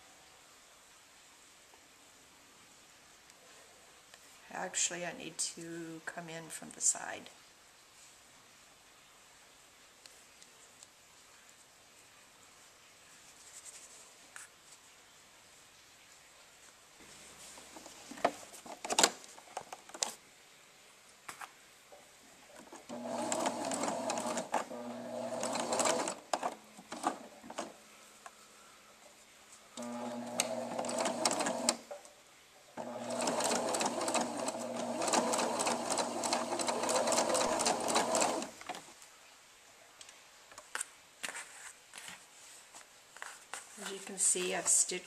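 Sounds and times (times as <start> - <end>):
electric sewing machine stitching: 22.8 - 27.6, 29.8 - 31.8, 32.8 - 38.6.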